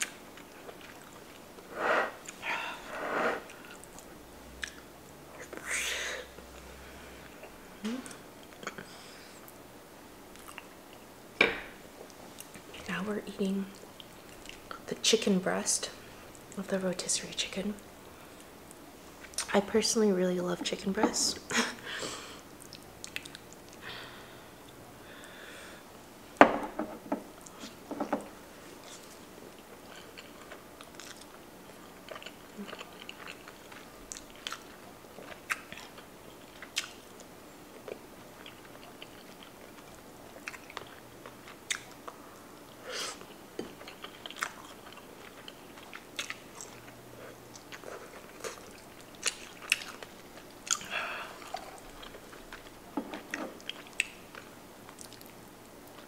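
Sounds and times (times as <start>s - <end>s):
person chewing food: 0.0s - 2.5s, 3.4s - 4.9s, 10.3s - 11.1s, 22.6s - 23.8s, 28.8s - 56.0s.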